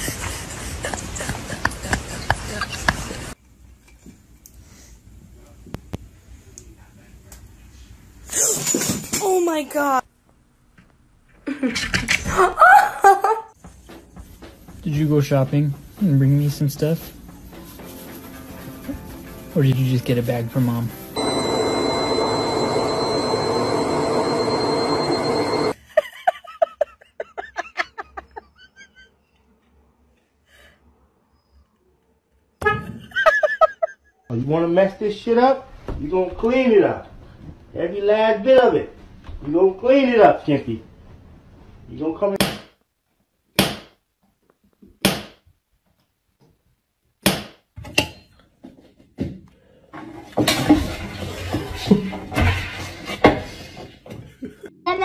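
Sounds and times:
washing machine spinning: 21.2s - 25.8s
clatter and rustling: 50.0s - 54.6s.

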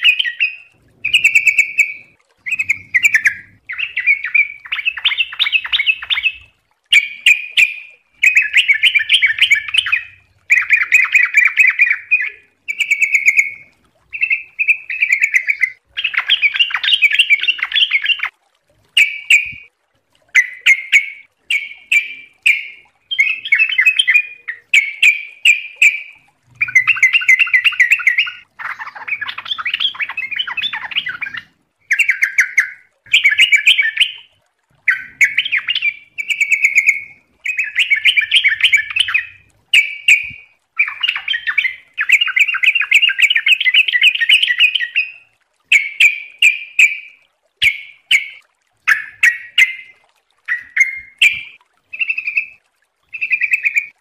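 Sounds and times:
bird warbling song: 0.0s - 18.3s, 19.0s - 19.7s, 20.3s - 54.0s.

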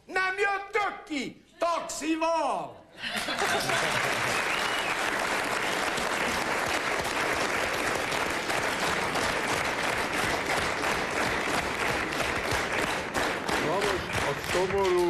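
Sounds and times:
audience applauding: 3.1s - 15.0s.

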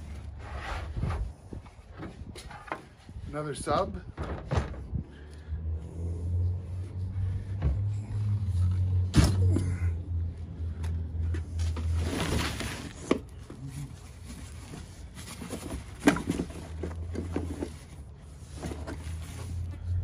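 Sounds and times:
cardboard rustling and scraping: 0.0s - 3.0s, 11.3s - 20.0s.

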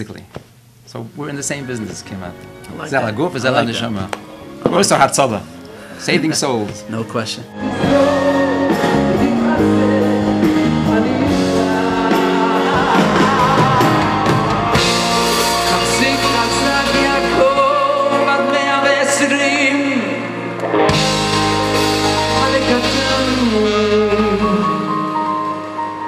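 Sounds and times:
full band playing: 6.4s - 26.0s
male vocals with vibrato: 7.5s - 20.5s, 22.2s - 25.5s.

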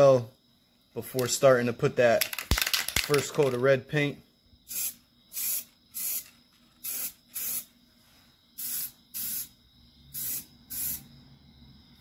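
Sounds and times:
spray paint can hissing: 4.7s - 7.7s, 8.6s - 11.1s.

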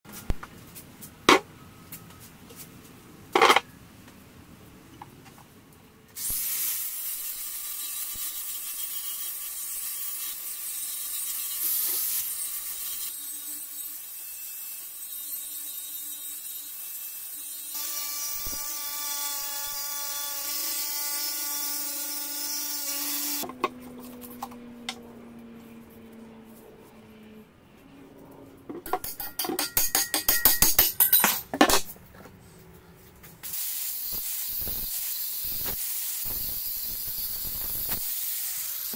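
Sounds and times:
angle grinder grinding metal: 6.2s - 14.2s, 33.5s - 38.9s.

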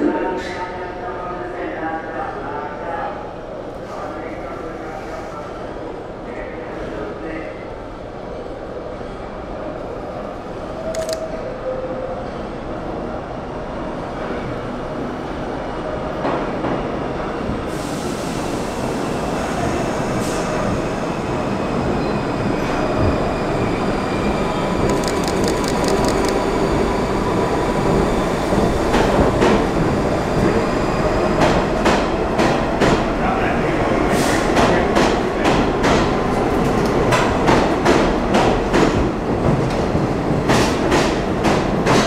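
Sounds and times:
subway train rumble: 0.0s - 42.0s
train cars clicking and knocking: 34.5s - 42.0s.

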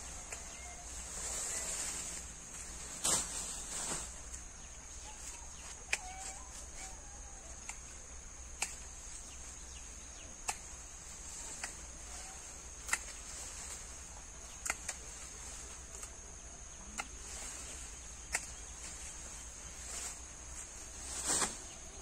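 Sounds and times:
insects droning: 0.0s - 22.0s
sharp clicks: 8.6s - 8.9s, 14.6s - 15.0s, 18.3s - 18.6s.

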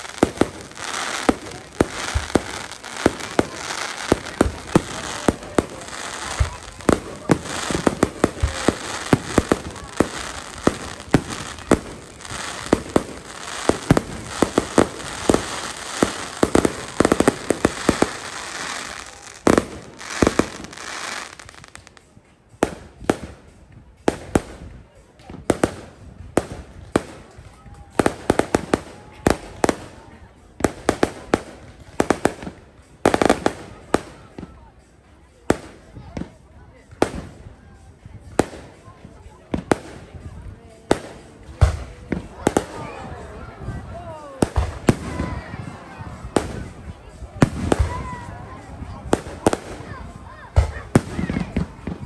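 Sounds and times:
fireworks bangs: 0.0s - 21.6s
continuous fireworks din: 0.0s - 52.0s.

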